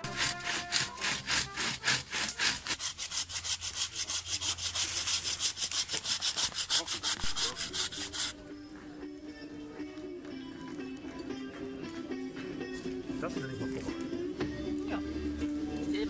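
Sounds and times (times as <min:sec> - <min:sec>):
hand saw cutting wood: 0:00.0 - 0:08.4.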